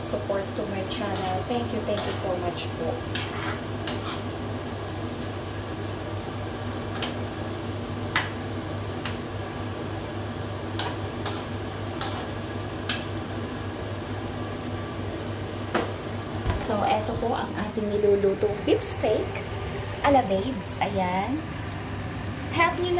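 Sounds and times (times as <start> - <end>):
spoon scraping a frying pan: 1.1 - 2.3, 3.1 - 4.3, 10.8 - 13.1.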